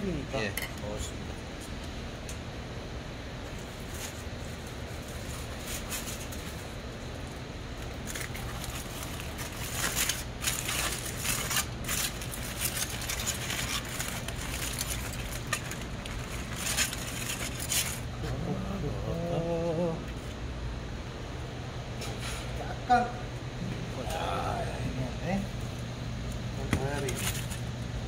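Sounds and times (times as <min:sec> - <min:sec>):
steady low hum: 0:00.0 - 0:28.0
aluminium foil crinkling: 0:03.4 - 0:18.3, 0:25.5 - 0:28.0.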